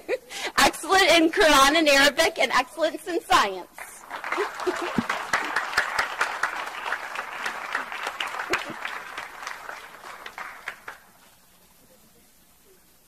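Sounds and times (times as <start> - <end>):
audience applause: 4.0 - 11.4.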